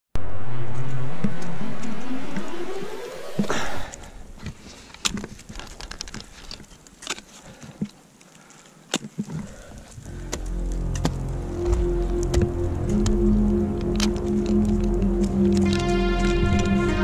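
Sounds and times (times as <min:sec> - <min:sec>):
loud whoosh: 0:00.2 - 0:04.0
music: 0:10.0 - 0:17.0.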